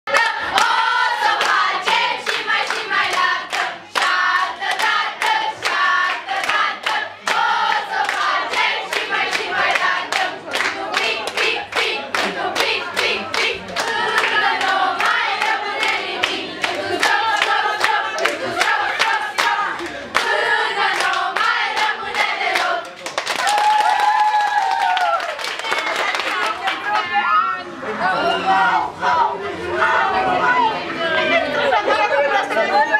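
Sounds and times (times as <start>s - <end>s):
girls singing together: 0.1s - 22.9s
hands clapping in rhythm: 0.1s - 27.1s.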